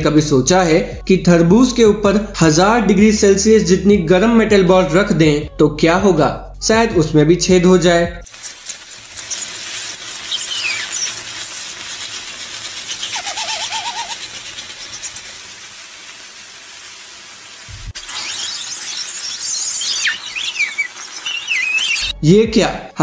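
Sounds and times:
hot metal sizzling in fruit: 8.2 - 22.2
high steam squeals: 8.3 - 22.2.

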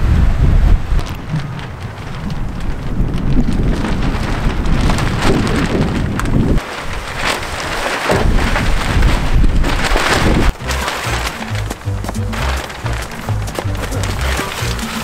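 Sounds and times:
gusty wind buffeting microphone: 0.0 - 10.6.

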